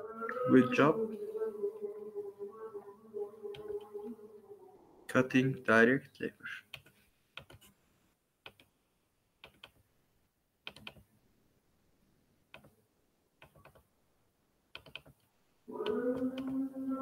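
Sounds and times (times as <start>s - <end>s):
computer keyboard typing: 8.4s - 8.7s, 9.4s - 9.8s, 10.7s - 11.0s, 14.7s - 15.2s.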